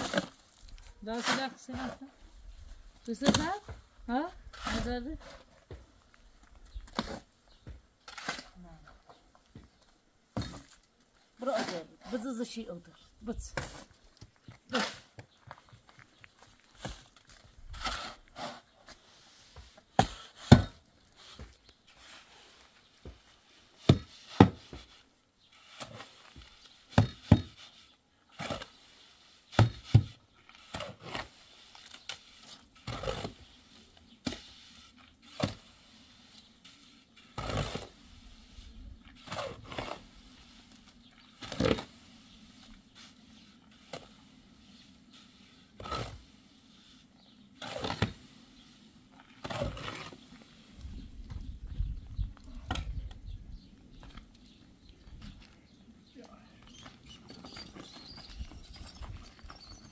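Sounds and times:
knocks and scrapes: 0.0s - 28.8s.

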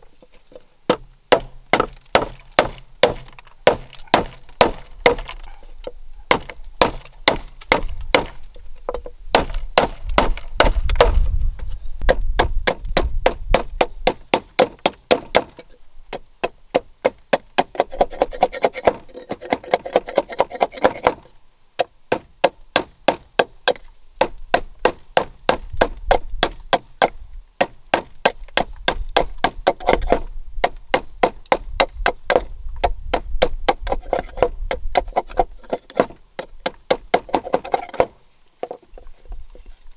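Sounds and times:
knife shaving bamboo: 17.8s - 21.2s.

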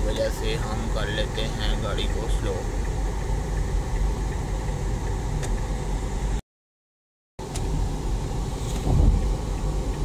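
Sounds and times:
car cabin road and engine noise: 0.0s - 6.4s, 7.4s - 10.0s.

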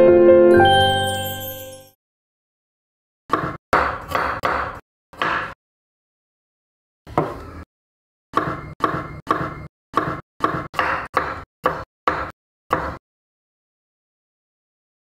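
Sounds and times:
knife chopping on wooden board: 3.3s - 5.6s, 7.1s - 7.5s, 8.4s - 13.0s.

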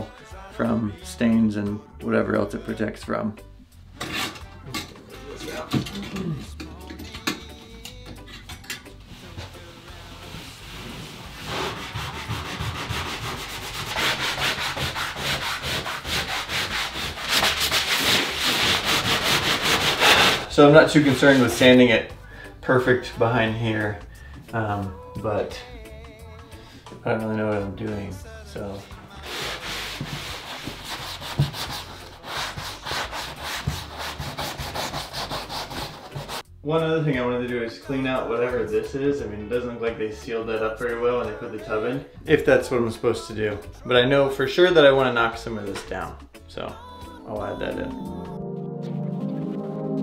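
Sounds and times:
hand sanding drywall: 9.9s - 21.7s, 29.2s - 36.4s.

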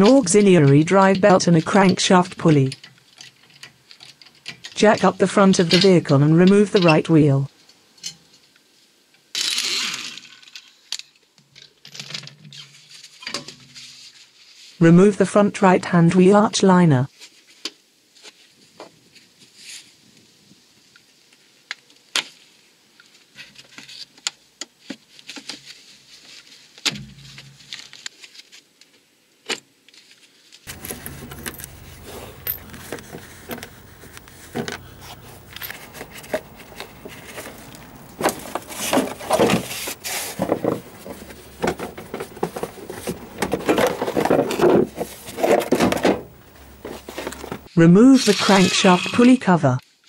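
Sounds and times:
plastic scraping and rubbing: 30.7s - 47.8s.

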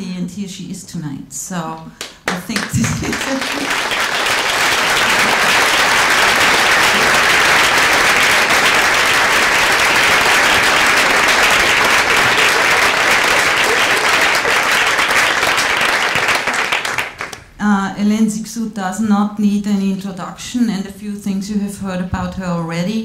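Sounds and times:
audience applauding: 2.0s - 17.5s.

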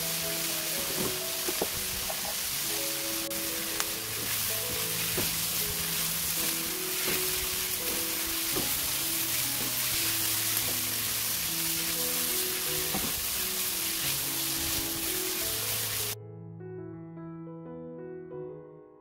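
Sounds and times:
vegetables sizzling in wok: 0.0s - 16.2s
soft background music: 0.0s - 19.0s
spatula scraping and knocking pan: 4.1s - 5.8s, 6.4s - 11.0s, 12.8s - 13.3s.

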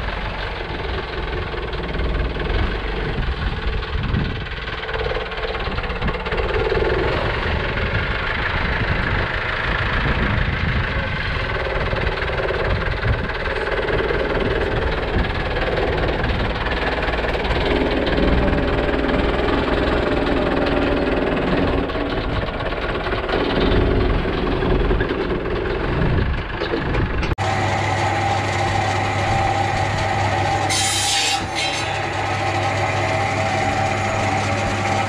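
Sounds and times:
engine running: 0.0s - 35.0s.

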